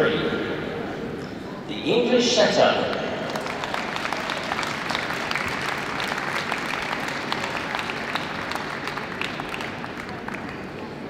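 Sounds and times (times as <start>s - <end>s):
audience applauding: 3.3s - 11.0s.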